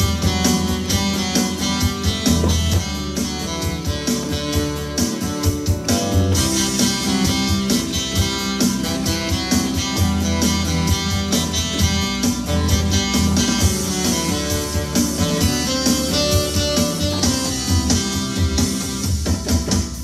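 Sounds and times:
drum machine beat: 0.0 - 20.0
electronic organ playing pop: 0.0 - 20.0.

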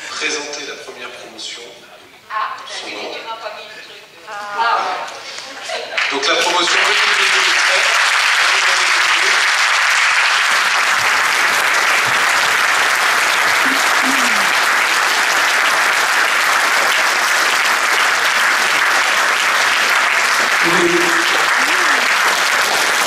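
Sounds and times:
audience clapping: 5.0 - 23.0.

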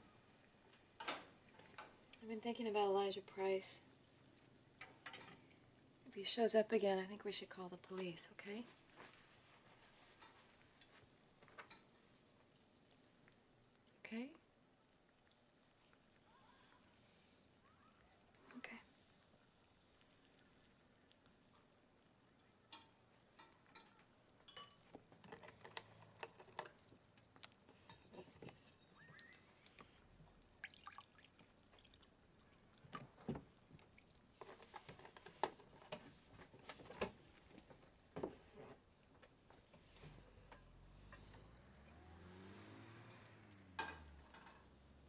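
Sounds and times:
light kitchen clicks and taps: 22.4 - 28.8
juice pouring into a glass: 30.5 - 32.9.

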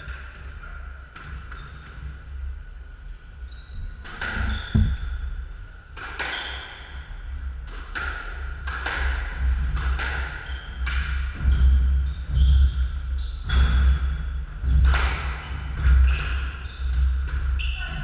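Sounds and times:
shoes squeaking on wooden floor: 3.5 - 5.3
squash ball hitting rackets and walls: 4.0 - 12.8, 13.4 - 17.7.

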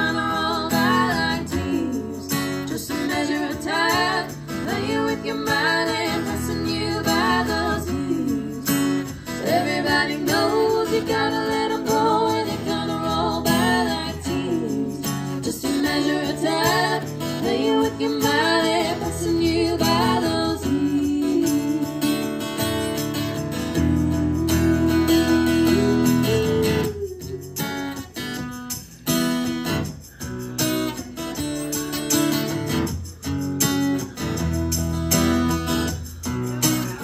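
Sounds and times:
women singing: 0.0 - 28.1
strummed acoustic guitar: 0.0 - 37.0.

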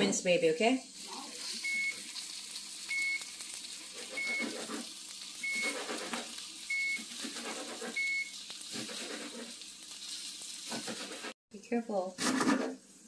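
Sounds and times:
onions sizzling in a skillet: 0.0 - 11.4
high timer beeps: 1.6 - 2.0.

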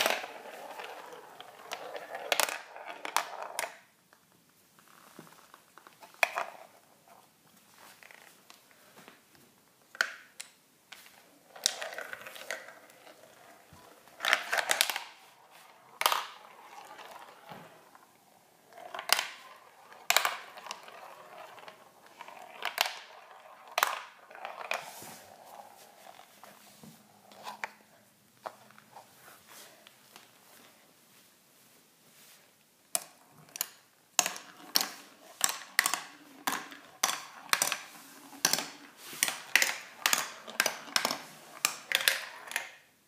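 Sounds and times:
marble clacking: 0.0 - 3.9, 9.9 - 28.9, 32.9 - 42.9
marble rolling on plastic track: 0.0 - 3.9, 5.8 - 7.2, 10.9 - 28.8, 32.9 - 42.9.

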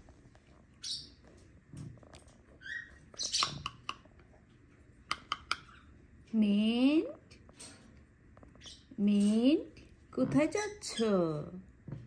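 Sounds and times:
bird chirp: 0.8 - 1.3, 2.6 - 4.0, 8.5 - 9.0
lovebird raspy calls: 2.6 - 4.0, 5.1 - 6.0
sharp clicks: 5.1 - 5.7.

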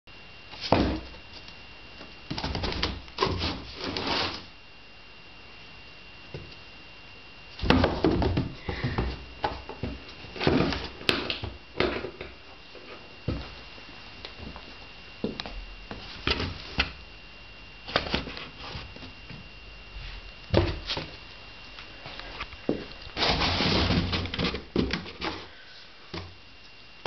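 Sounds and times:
cats scratching cardboard box: 2.3 - 4.5, 23.1 - 25.5.

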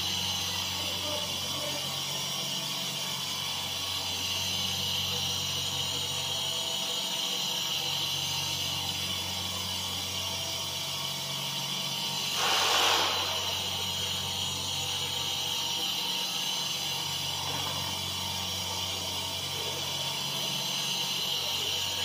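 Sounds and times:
router spindle milling foam: 0.0 - 22.0.

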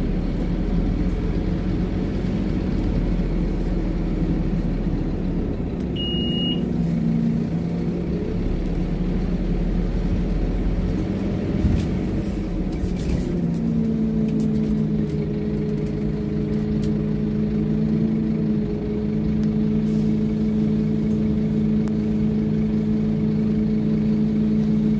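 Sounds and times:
bus engine drone: 0.0 - 24.9
short high beep: 6.0 - 6.6.

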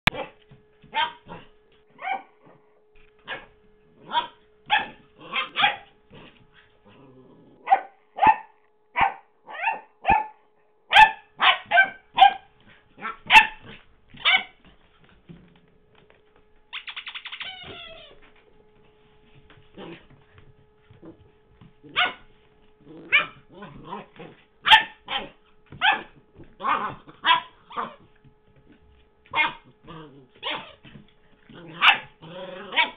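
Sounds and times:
puppy yipping: 7.7 - 10.3, 16.7 - 18.2, 24.6 - 28.0.

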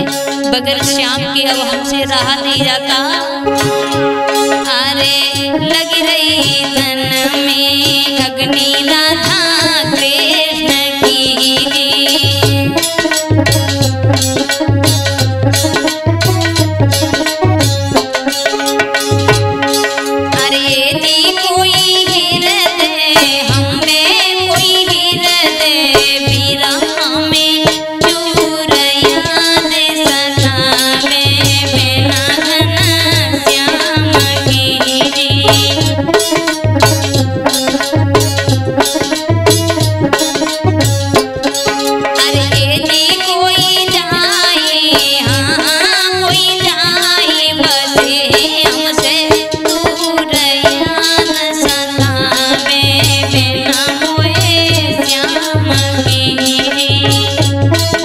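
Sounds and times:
drum rhythm: 0.0 - 58.0
folk melody: 11.4 - 26.0.

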